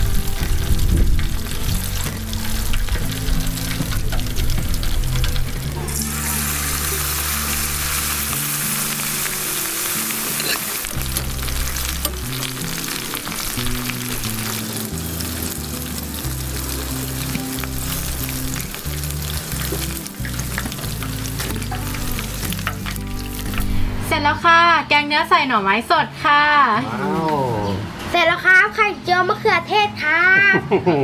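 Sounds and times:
chicken deep-frying in oil: 0:00.0 - 0:23.6
background music: 0:00.0 - 0:28.0.

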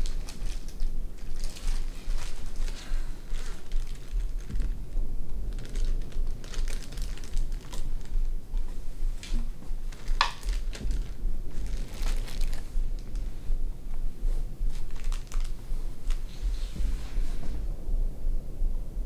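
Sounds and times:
plastic bag crinkling: 0:00.0 - 0:13.3, 0:14.7 - 0:16.3.

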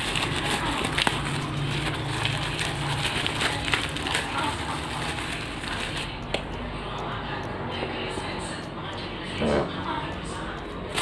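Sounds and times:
plastic bag crinkling: 0:00.0 - 0:06.0.

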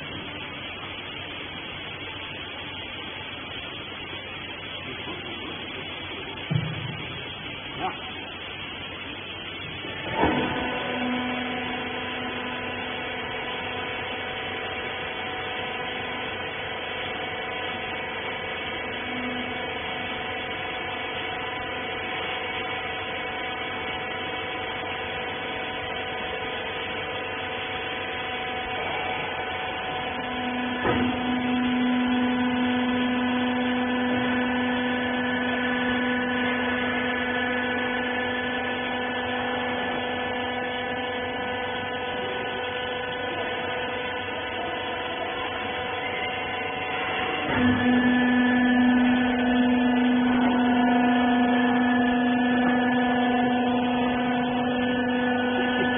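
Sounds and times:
pump motor humming: 0:00.0 - 0:55.9
machine knock: 0:06.4 - 0:07.1.

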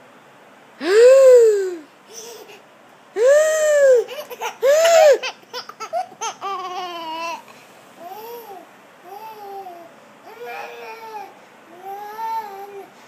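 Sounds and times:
baby laughing: 0:02.1 - 0:02.6, 0:03.7 - 0:07.4.

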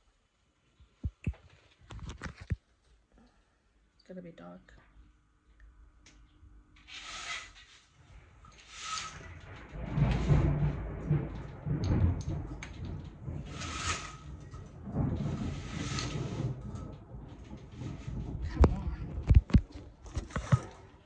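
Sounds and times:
thunder rumbling: 0:08.1 - 0:21.0.

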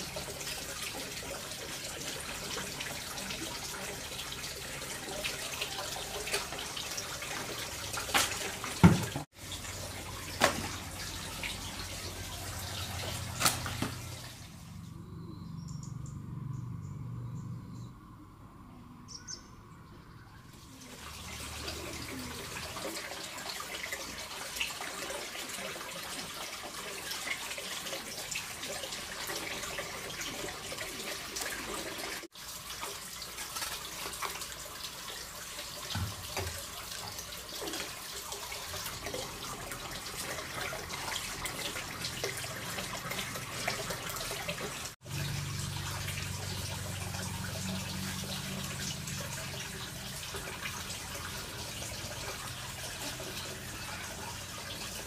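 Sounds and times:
tap water splashing into sink: 0:05.2 - 0:09.3, 0:10.0 - 0:11.7, 0:12.3 - 0:14.3, 0:35.7 - 0:44.8.

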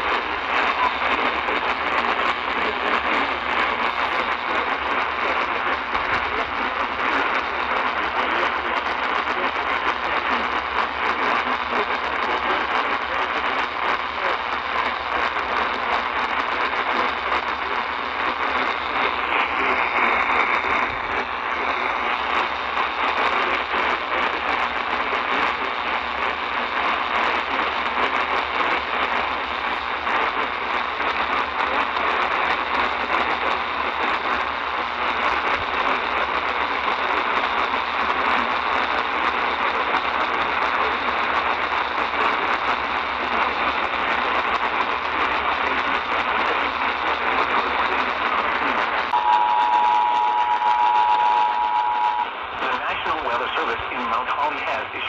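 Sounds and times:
radio static hiss: 0:00.0 - 0:55.0
faint wavering whistle: 0:49.2 - 0:52.3.

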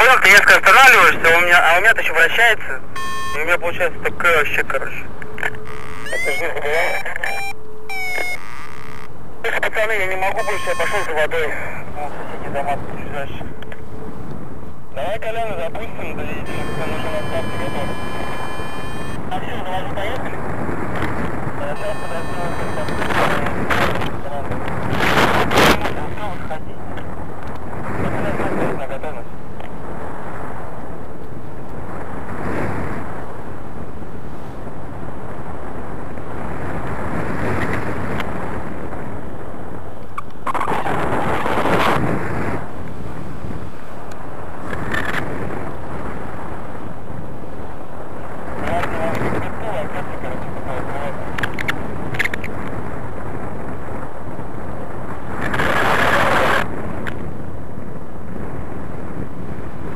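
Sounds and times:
wind roar on microphone: 0:00.0 - 0:59.9.

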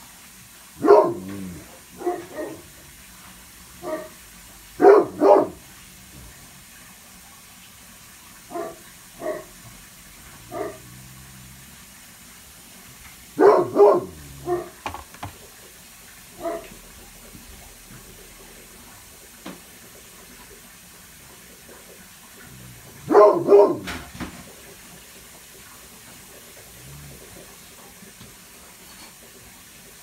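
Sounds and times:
dog barking deeply: 0:00.8 - 0:02.8, 0:03.8 - 0:04.2, 0:04.8 - 0:05.7, 0:08.5 - 0:09.6, 0:10.3 - 0:11.9, 0:13.3 - 0:14.8, 0:16.3 - 0:16.8, 0:22.4 - 0:24.1.

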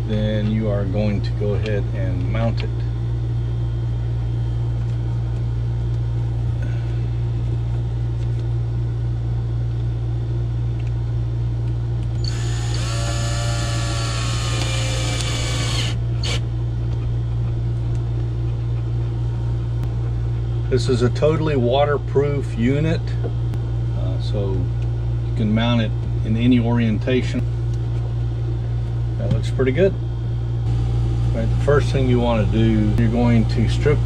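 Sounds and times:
steady low hum: 0:00.0 - 0:34.0
cordless drill whining: 0:12.2 - 0:16.4.

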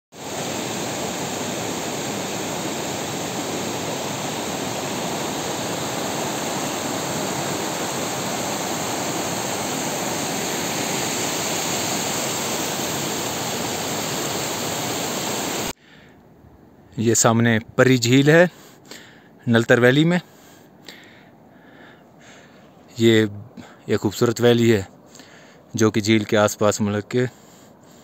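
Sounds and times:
stream rushing over rocks: 0:00.1 - 0:15.7.

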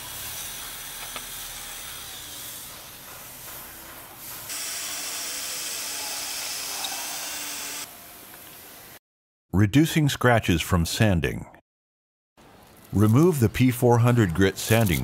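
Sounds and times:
drill motor whir: 0:00.0 - 0:02.7, 0:04.5 - 0:07.9.

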